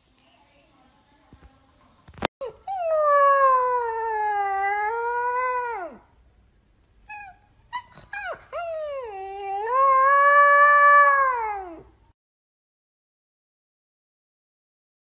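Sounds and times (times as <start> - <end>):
puppy howling: 2.4 - 6.0, 7.1 - 11.9
puppy yelping and whimpering: 2.4 - 6.0, 7.1 - 10.2.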